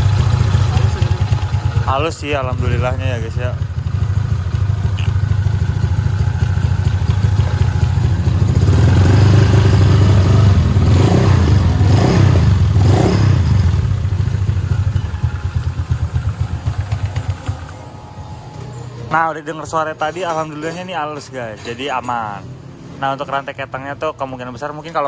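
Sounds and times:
scooter engine revving: 0.0s - 19.0s.

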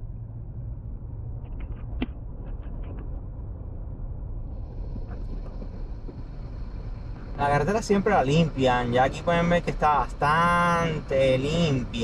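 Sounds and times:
car road rumble from inside: 0.0s - 12.0s.

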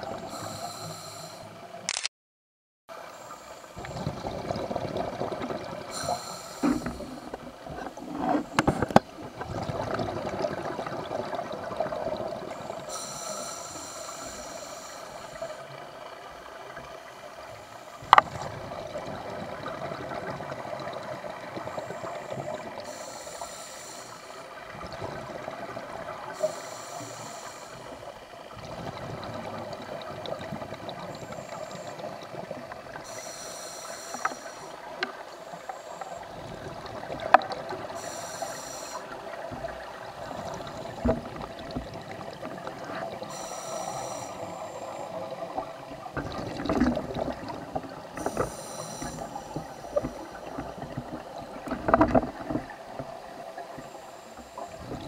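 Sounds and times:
watery murmur: 0.0s - 1.8s, 2.9s - 55.0s
regulator hiss: 0.2s - 1.6s, 5.9s - 7.4s, 12.5s - 18.0s, 21.6s - 24.6s, 26.2s - 28.4s, 31.0s - 36.4s, 37.8s - 39.7s, 43.2s - 45.6s, 48.0s - 51.6s, 53.6s - 55.0s
sharp clicks: 1.9s - 2.1s
exhaled bubbles gurgling: 3.8s - 23.6s, 24.3s - 55.0s.

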